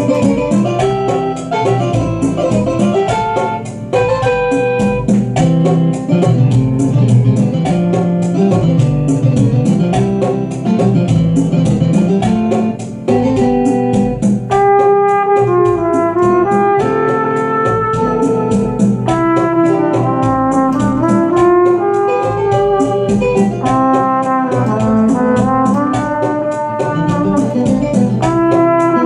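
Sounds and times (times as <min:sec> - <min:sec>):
keyboard accompaniment with beat: 0:00.0 - 0:29.0
brass horn melody: 0:14.5 - 0:29.0.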